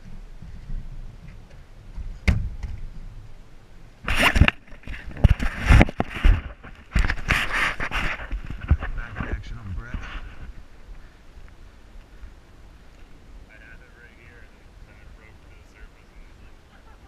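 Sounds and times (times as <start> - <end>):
wind rumble on microphone: 0.0 - 17.0
camera handling rubbing and knocking: 4.1 - 10.5.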